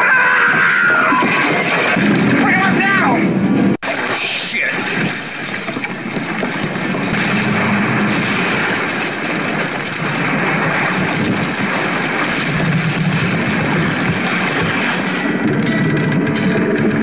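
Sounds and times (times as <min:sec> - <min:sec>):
sea water splashing around boat: 0:03.8 - 0:15.4
low rumble: 0:04.7 - 0:17.0.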